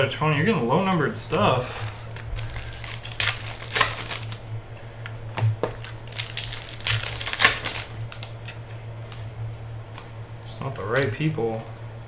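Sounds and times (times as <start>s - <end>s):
low hum: 0.0s - 12.0s
foil wrapper tearing and crinkling: 1.6s - 4.4s, 5.6s - 8.9s.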